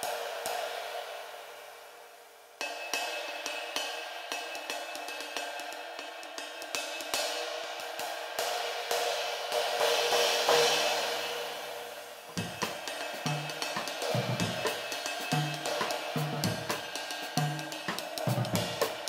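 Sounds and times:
ride cymbal ringing: 2.7 - 19.0
drum kit groove: 12.3 - 19.0.

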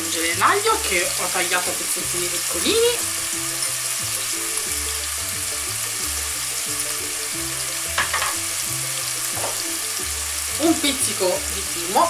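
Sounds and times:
sausage sizzling in oil: 0.0 - 12.0
soft background music: 0.0 - 12.0
spoon scraping a pan: 7.9 - 8.4.

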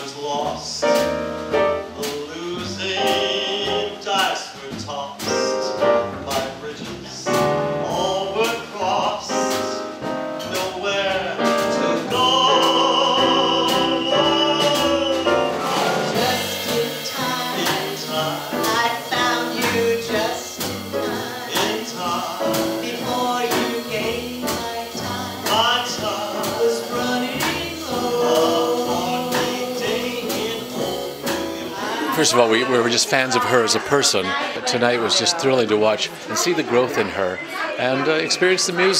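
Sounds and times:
grand piano playing: 0.0 - 37.2
woman singing: 12.1 - 33.6.

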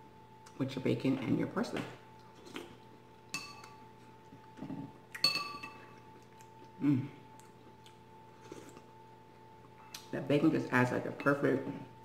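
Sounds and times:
faint steady hum: 0.0 - 12.0
metal spoon clinking on bowl: 3.3 - 3.8, 5.2 - 5.8.

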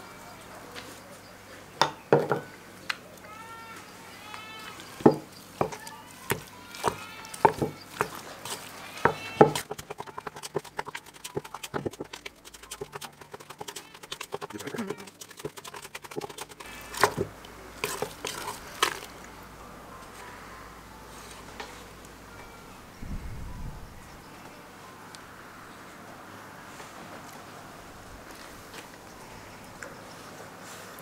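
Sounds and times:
animal call: 3.2 - 12.0
wooden spoon scraping steel bowl: 5.1 - 19.1.

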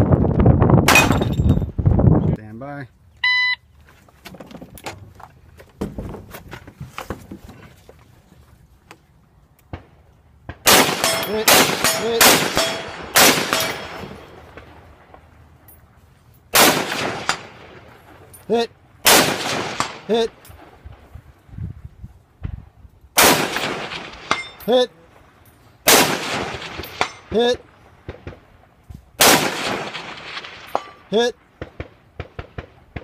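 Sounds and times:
rifle shots with echo: 9.7 - 15.3, 16.5 - 18.2, 19.0 - 20.3, 23.2 - 24.6, 25.8 - 28.5, 29.2 - 33.0.

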